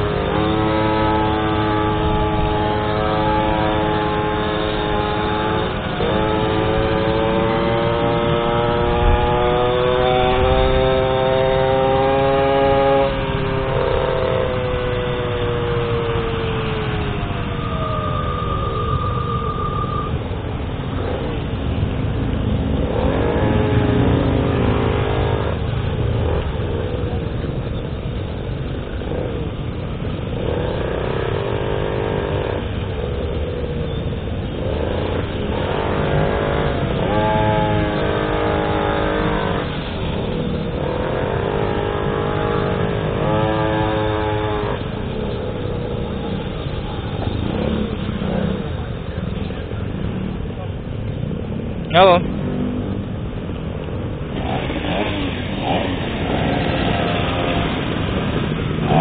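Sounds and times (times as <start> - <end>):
high-pitched small engine: 0.0 - 20.4, 34.5 - 48.8
road and wind noise: 0.0 - 59.0.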